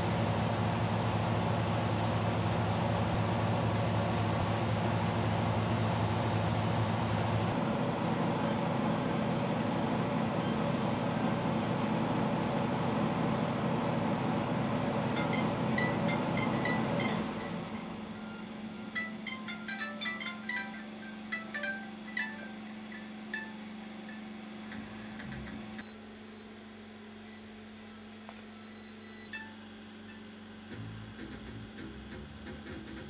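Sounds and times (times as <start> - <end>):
loud mechanical hum: 0.0 - 33.0.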